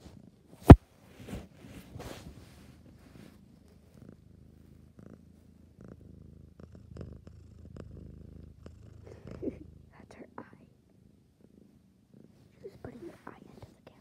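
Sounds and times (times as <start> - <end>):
cat purring: 0.0 - 14.0.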